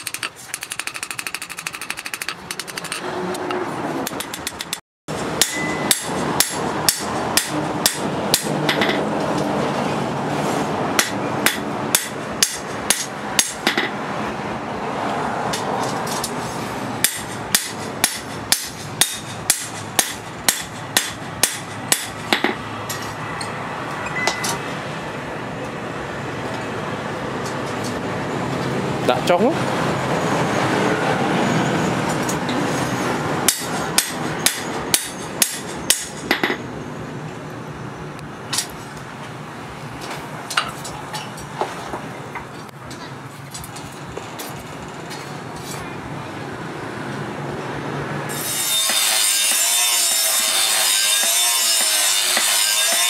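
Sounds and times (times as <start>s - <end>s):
hammer striking metal on anvil: 4.1s - 9.1s, 11.0s - 14.0s, 17.0s - 23.1s, 33.5s - 36.6s, 48.3s - 53.0s.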